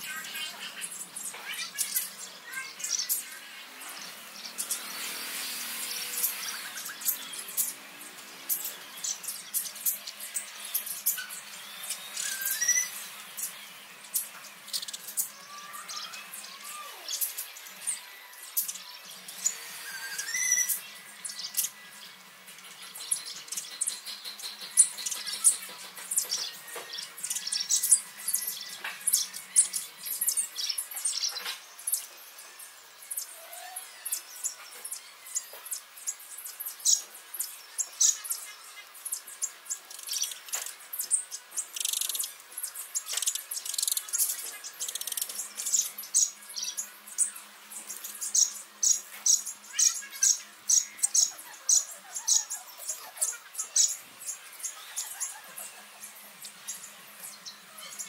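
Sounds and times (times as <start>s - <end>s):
sparrows chirping: 0.0s - 58.0s.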